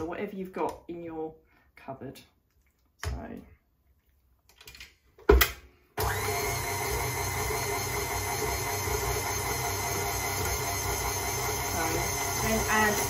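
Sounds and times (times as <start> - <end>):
stand mixer motor running: 6.0 - 13.0.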